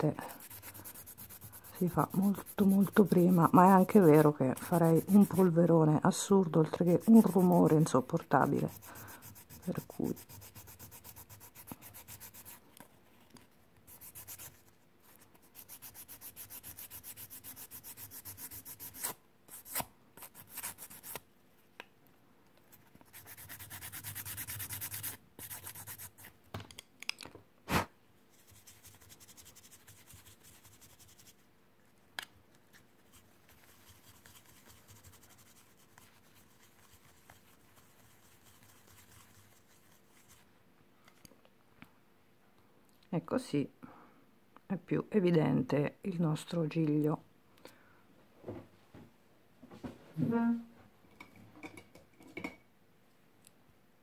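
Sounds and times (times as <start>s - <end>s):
hand file scraping resin: 0.3s - 5.7s, 6.6s - 12.8s, 15.5s - 21.2s, 23.1s - 26.3s.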